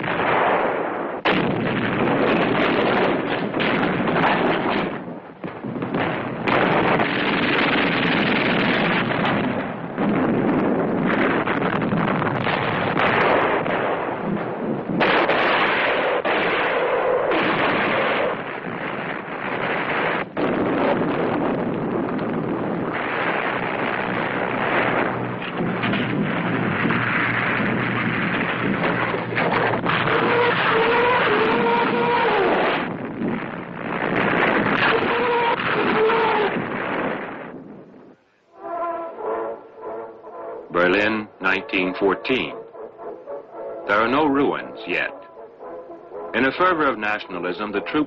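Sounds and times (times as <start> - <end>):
gunfire: 0.0 - 37.8
explosions: 0.0 - 38.2.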